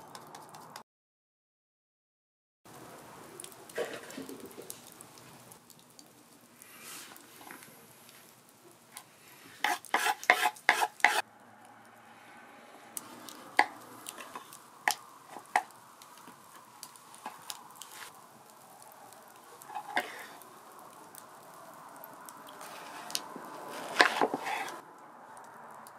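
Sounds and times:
light sizzling: 2.7 - 25.9.

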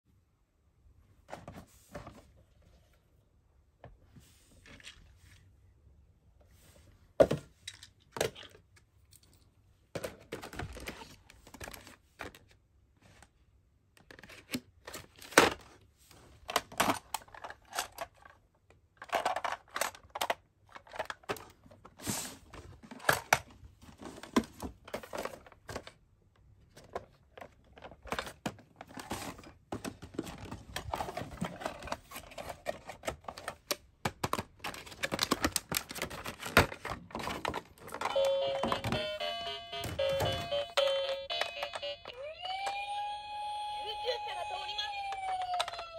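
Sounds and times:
packaging crinkling: 30.1 - 39.0.

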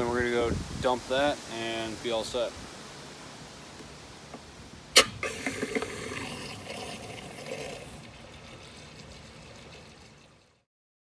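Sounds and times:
water rushing from hose: 5.0 - 10.7.

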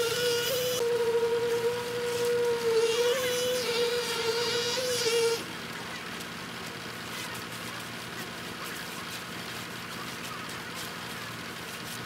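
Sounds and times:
high-pitched machine whine: 0.0 - 6.2
low truck engine hum: 0.0 - 12.0.

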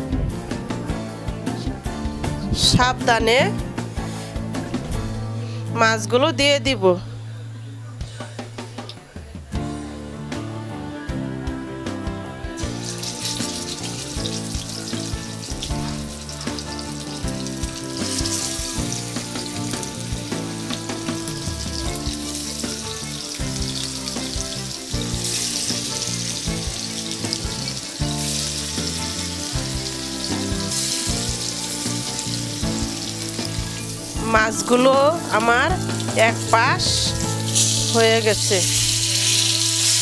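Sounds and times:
background music: 0.0 - 40.0
fish sizzling in hot oil: 12.6 - 40.0.

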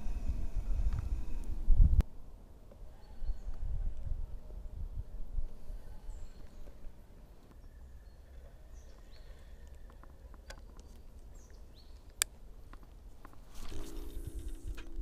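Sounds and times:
low steady rumble: 0.0 - 2.2, 13.4 - 15.0
faint bird chirps: 2.9 - 3.9, 5.6 - 12.1.

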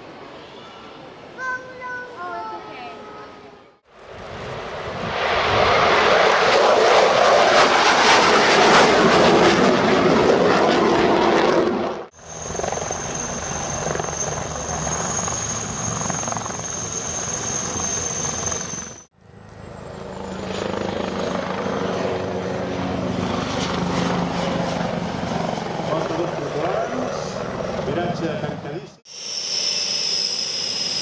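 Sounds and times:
rushing aircraft engine noise: 3.9 - 31.0
high-pitched engine whine: 12.2 - 27.4, 29.1 - 31.0.

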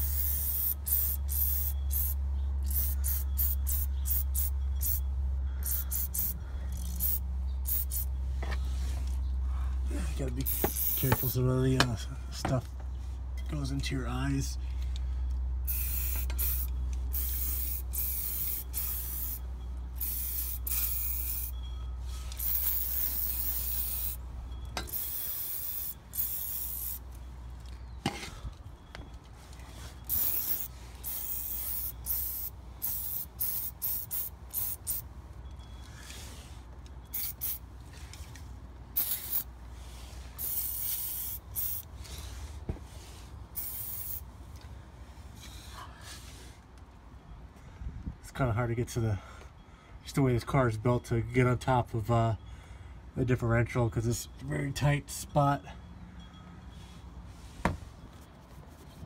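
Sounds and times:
aerosol can spraying: 5.7 - 6.3, 7.0 - 8.1, 10.5 - 11.4, 15.7 - 19.4, 20.0 - 21.5, 22.4 - 24.2, 24.9 - 27.0, 30.1 - 35.0, 37.2 - 37.6, 39.0 - 39.4, 40.4 - 41.8, 43.6 - 44.2.

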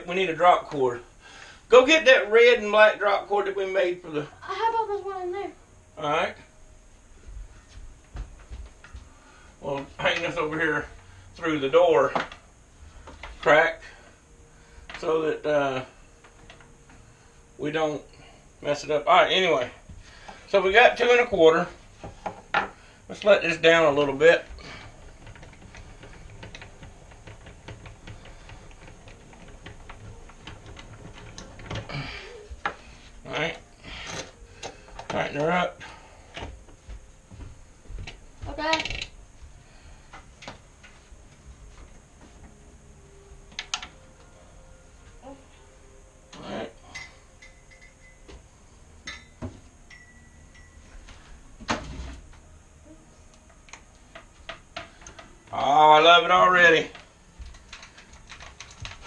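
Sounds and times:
tools and wood clicking and knocking: 22.0 - 22.8, 24.6 - 32.9, 34.0 - 35.5, 43.5 - 44.0, 53.3 - 55.6, 56.9 - 59.0.

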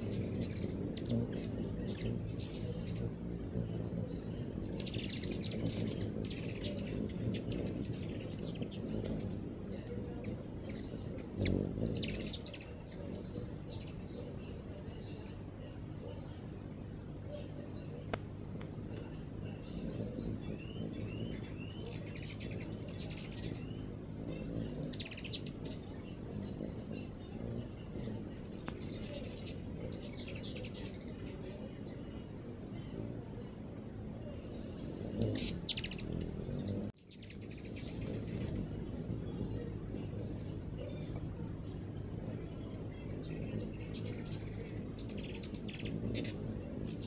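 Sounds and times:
hummingbirds chittering: 0.0 - 47.0
low background rumble: 0.0 - 47.0
steady low noise: 0.0 - 47.0.

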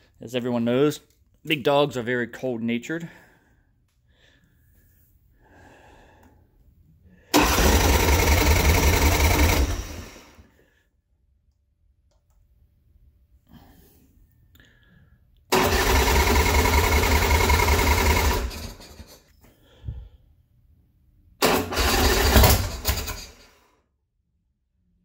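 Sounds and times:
motorcycle engine cranking: 7.4 - 10.1, 15.6 - 19.2, 21.4 - 23.5.

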